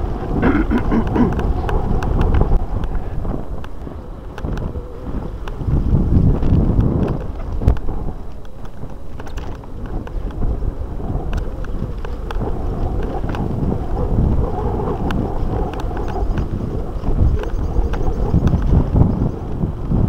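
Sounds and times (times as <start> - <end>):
bike rolling on dirt track: 0.0 - 20.0
wind buffeting microphone: 0.0 - 20.0
sharp clicks and rattles: 6.4 - 10.5.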